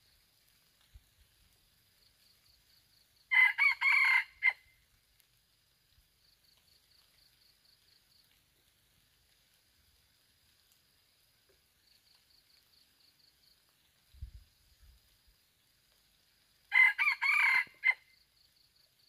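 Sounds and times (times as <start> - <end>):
rooster crowing: 3.3 - 4.6, 16.7 - 18.1.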